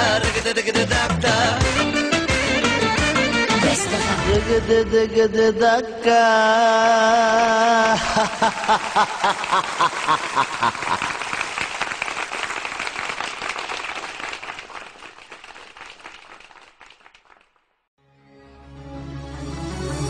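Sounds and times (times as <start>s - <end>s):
group clapping: 7.8s - 17.8s.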